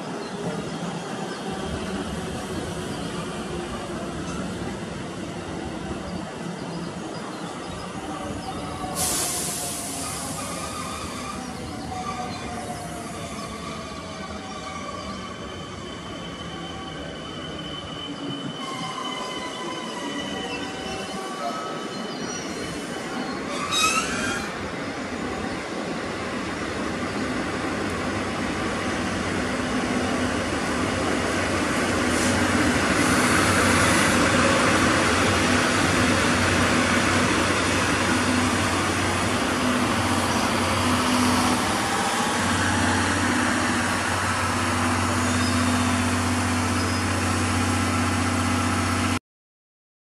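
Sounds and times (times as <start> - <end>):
diesel locomotive engine drone: 21.8 - 49.2.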